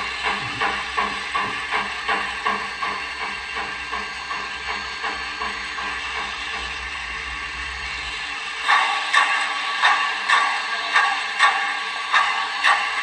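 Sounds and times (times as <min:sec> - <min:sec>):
low motor hum: 0:00.0 - 0:08.6
model locomotive steam chuffs: 0:00.0 - 0:13.0.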